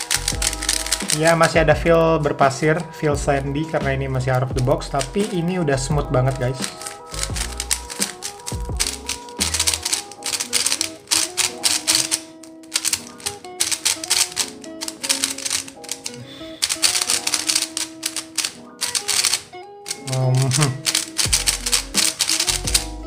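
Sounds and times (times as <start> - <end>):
puzzle cube layers clicking: 0.0 - 1.5, 6.2 - 23.0
background music: 0.0 - 23.0.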